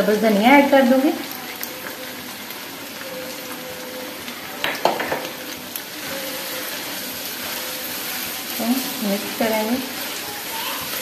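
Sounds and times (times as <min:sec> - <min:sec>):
food sizzling in a wok: 0:00.0 - 0:11.0
spatula stirring food: 0:05.2 - 0:11.0.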